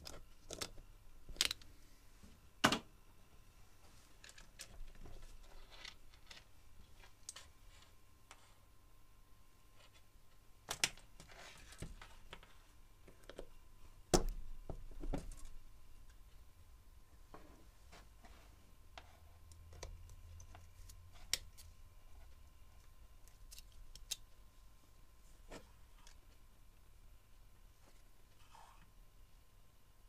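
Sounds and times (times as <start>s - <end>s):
cables being handled: 0.0s - 1.8s, 3.8s - 8.6s, 9.7s - 16.4s, 17.3s - 26.9s.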